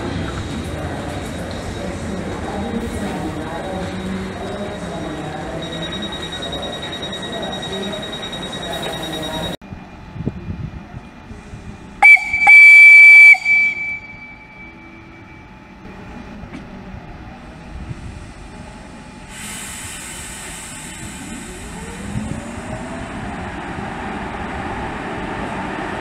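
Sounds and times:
train rumbling: 0:00.0 - 0:26.0
train warning horn: 0:12.0 - 0:14.9.

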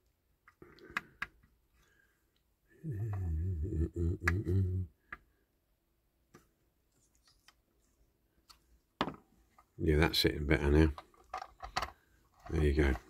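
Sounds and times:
man humming: 0:02.7 - 0:05.1.

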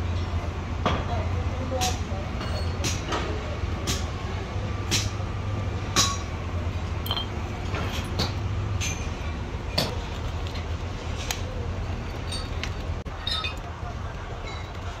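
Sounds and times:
sharp metallic clinks: 0:07.0 - 0:09.2.

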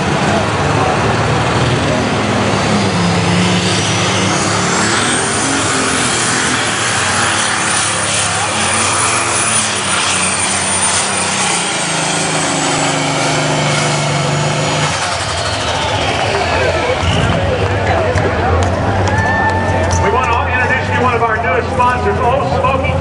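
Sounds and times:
tractor engine running flat out: 0:00.0 - 0:23.0
turbo whine: 0:02.7 - 0:18.2.

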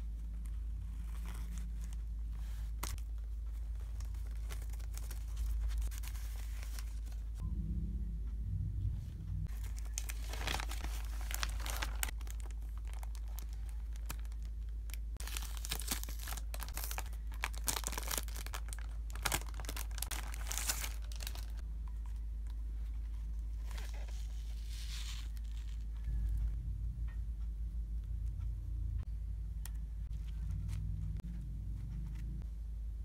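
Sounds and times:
plastic wrap crinkling: 0:09.5 - 0:21.6.

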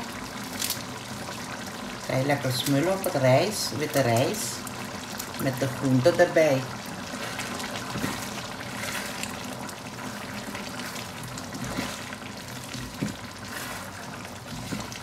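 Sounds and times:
food sizzling in a wok: 0:00.0 - 0:15.0
spatula stirring and scraping pan: 0:07.1 - 0:15.0.

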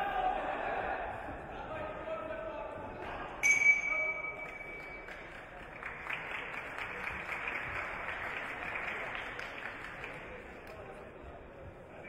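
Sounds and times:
boxing bell ringing: 0:03.4 - 0:05.1
crowd applauding: 0:04.4 - 0:11.0.

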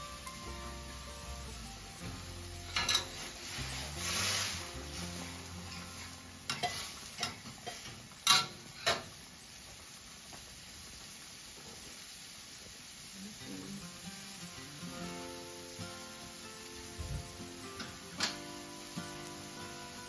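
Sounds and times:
gas burner hissing: 0:00.0 - 0:20.0
ladle scraping a wok: 0:02.5 - 0:09.0.

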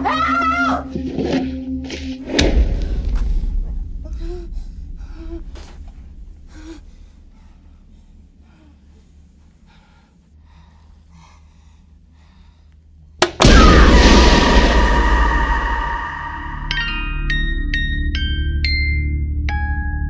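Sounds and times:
low rumbling drone: 0:01.5 - 0:12.0, 0:13.4 - 0:17.7
tense breathing: 0:02.8 - 0:13.1
horror stinger hit: 0:13.4 - 0:17.6.

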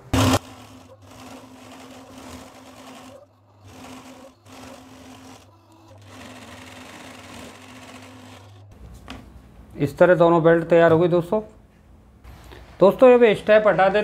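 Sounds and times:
sewing machine stitching: 0:00.1 - 0:08.8.

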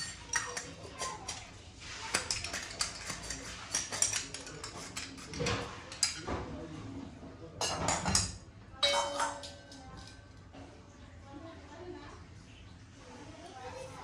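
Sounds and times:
brass utensils clinking: 0:08.8 - 0:10.2.

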